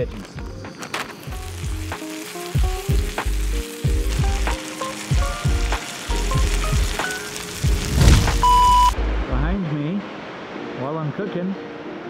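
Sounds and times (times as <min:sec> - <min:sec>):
vegetables and sausage sizzling: 0:00.0 - 0:09.2
background music with heavy bass: 0:01.4 - 0:07.0, 0:07.6 - 0:09.7.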